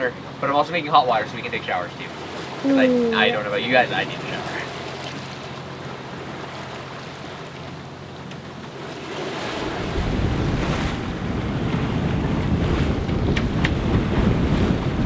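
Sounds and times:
water rushing past hull: 0.0 - 15.0
wind and sea noise: 0.0 - 15.0
wind rumble on microphone: 9.4 - 15.0.

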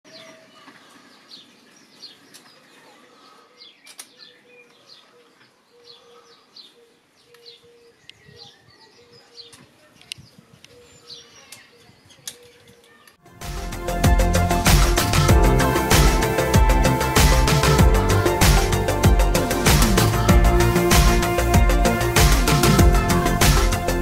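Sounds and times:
small birds chirping: 0.1 - 13.2
low repeating note: 13.3 - 24.0.

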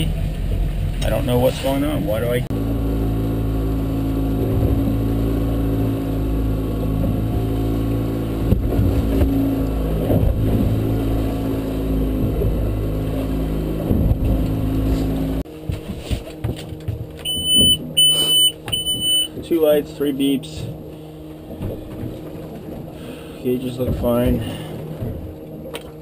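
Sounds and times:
trolling motor running: 0.0 - 26.0
knocks on boat: 8.4 - 9.4, 10.0 - 10.7, 13.8 - 14.6, 23.8 - 26.0.

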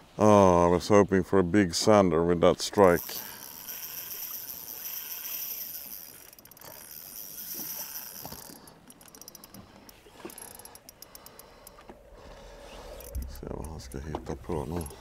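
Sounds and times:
fishing reel clicking: 2.8 - 11.8, 12.8 - 14.0.

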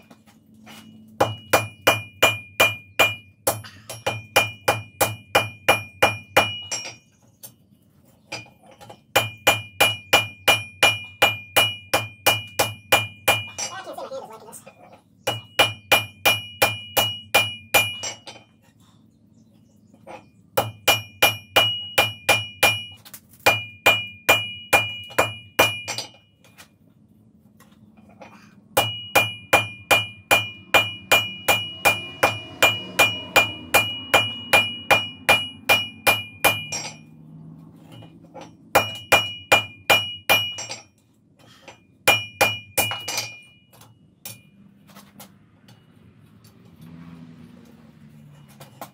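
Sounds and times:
hammer ringing on anvil: 0.7 - 7.1, 8.3 - 13.8, 15.2 - 18.4, 20.6 - 22.9, 23.5 - 26.3, 28.8 - 37.2, 37.9 - 40.9, 41.7 - 44.6.

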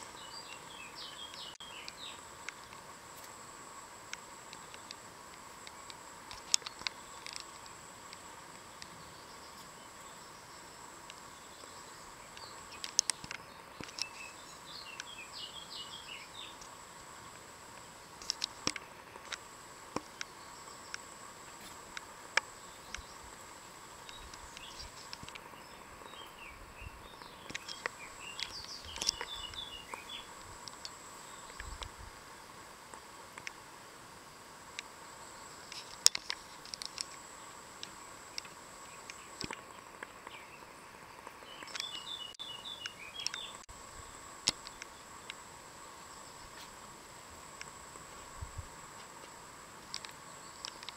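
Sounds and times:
twittering bird calls: 0.0 - 2.7, 11.2 - 16.7, 24.0 - 31.9, 37.8 - 43.7
high insect trill: 0.0 - 50.9
sharp light clicks and taps: 4.1 - 8.2, 12.3 - 14.2, 17.8 - 20.3, 24.0 - 25.5, 27.2 - 31.9, 35.7 - 37.2, 37.8 - 40.4, 41.2 - 43.7, 49.0 - 50.9.

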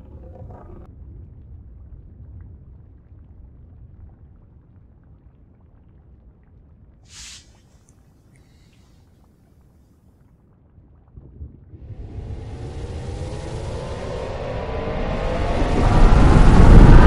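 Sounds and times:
low rumble: 0.0 - 5.3, 11.1 - 17.0
short bright hiss: 7.1 - 9.0.

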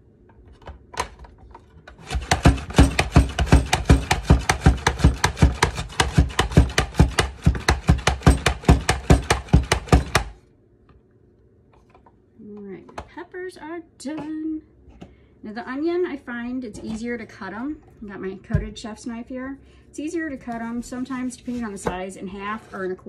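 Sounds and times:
vegetable chopper clacking: 2.0 - 10.4.

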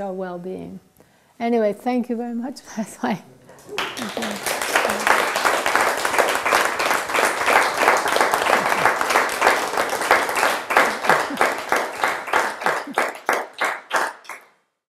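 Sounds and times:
audience applauding: 3.6 - 14.5.

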